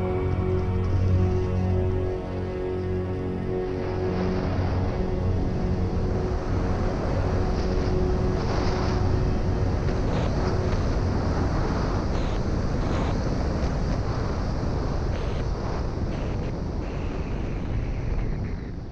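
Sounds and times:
background music: 0.0 - 13.2
wind rushing over microphone: 0.0 - 18.9
skis scraping on snow: 7.3 - 15.8.

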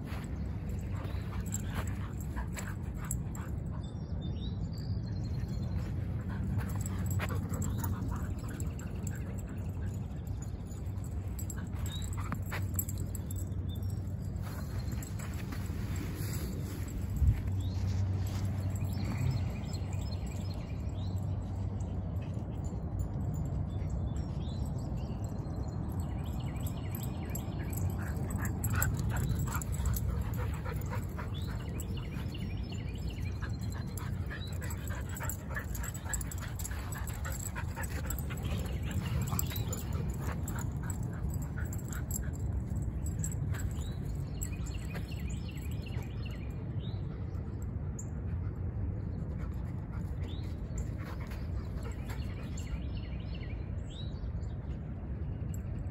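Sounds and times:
dogs whining and yipping: 0.6 - 15.4, 26.6 - 46.4.

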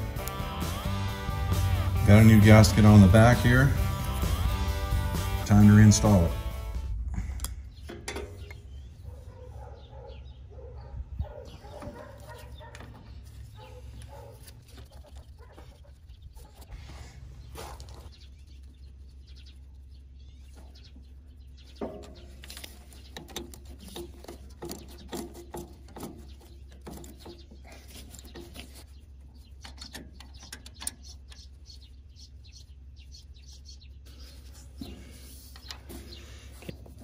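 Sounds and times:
small metal clicks and knocks: 29.6 - 31.5.

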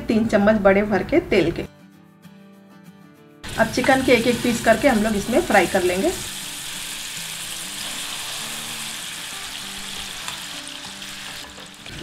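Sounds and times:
chicken sizzling in hot oil: 3.4 - 12.0.

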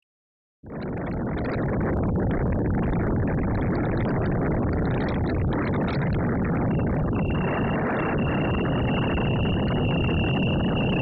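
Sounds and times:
wind buffeting microphone: 1.2 - 11.0.

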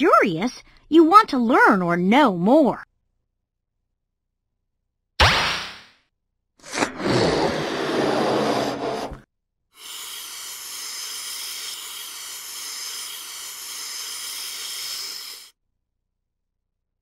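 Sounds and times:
balloon inflating air rush: 6.6 - 9.2, 9.8 - 15.6
steady hiss: 9.8 - 15.5.

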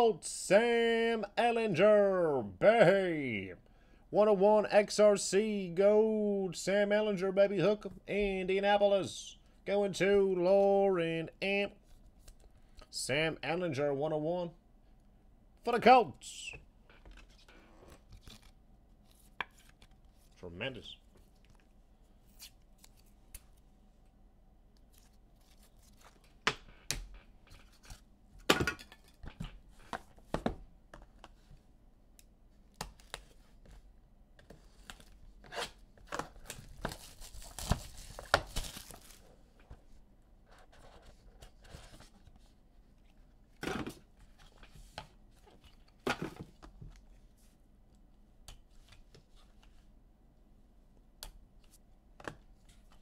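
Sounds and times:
cards handled on a table: 17.0 - 20.4
wrapper tearing and crinkling: 36.9 - 39.2.

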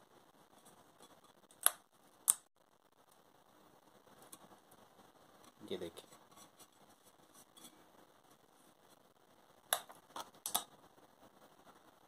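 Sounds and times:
tape ticks and crackles: 0.6 - 3.2.

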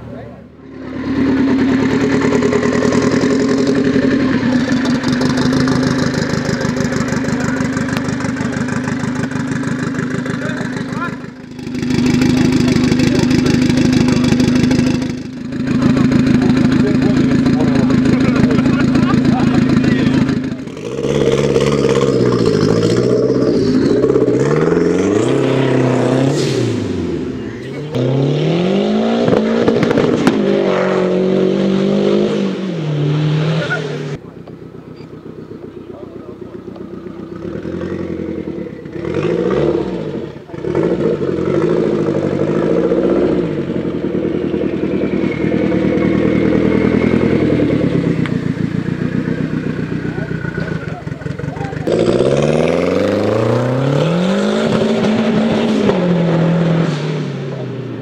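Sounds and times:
car engine revving: 0.0 - 58.0.

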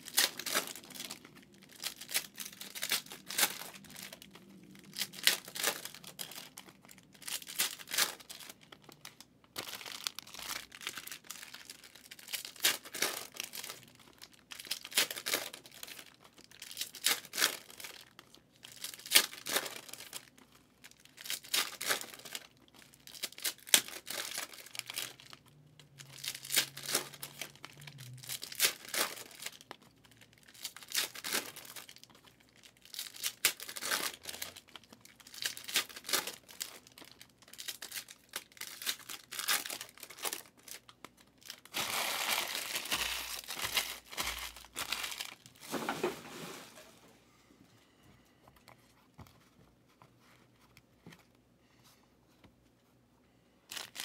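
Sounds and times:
foil wrappers tearing and crinkling: 0.0 - 46.8, 53.7 - 54.0.

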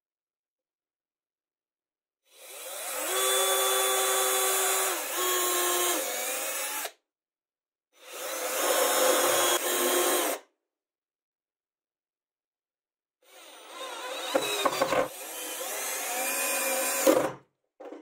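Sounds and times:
cordless drill boring wood: 2.3 - 7.0, 8.0 - 10.5, 13.2 - 17.4.

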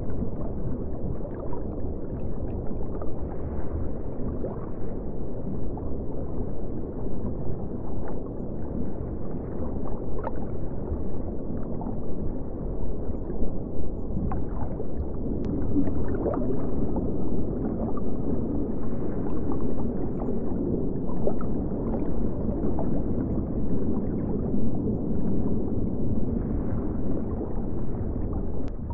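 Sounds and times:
muffled low room rumble: 0.0 - 28.9.

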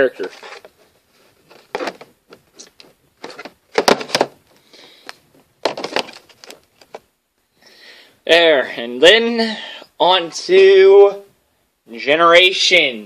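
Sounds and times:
blister packs rustling and clicking: 1.4 - 7.0.

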